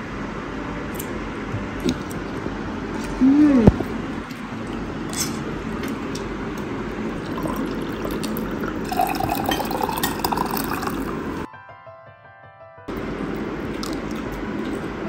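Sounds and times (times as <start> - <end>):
drink pouring into a glass: 7.2 - 11.5.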